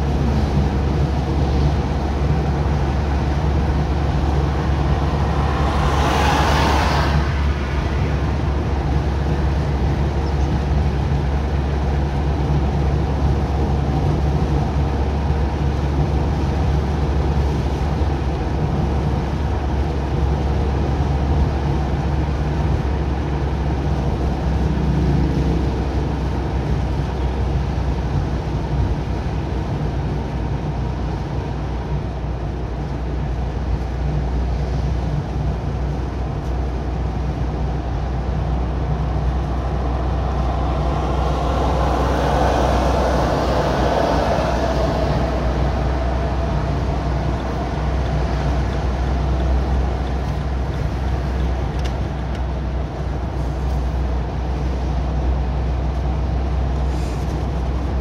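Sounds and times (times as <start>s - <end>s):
car engine and tyre drone: 0.0s - 58.0s
rushing whoosh: 3.5s - 10.0s, 37.8s - 51.3s.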